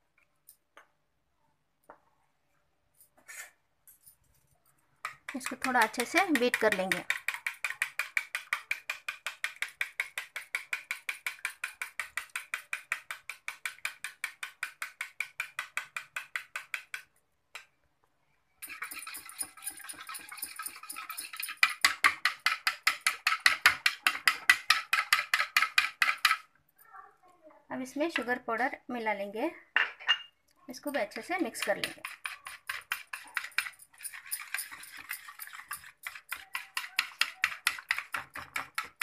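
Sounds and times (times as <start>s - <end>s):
wire whisk beating yogurt: 5.0s - 17.0s, 18.6s - 26.5s, 31.0s - 39.0s.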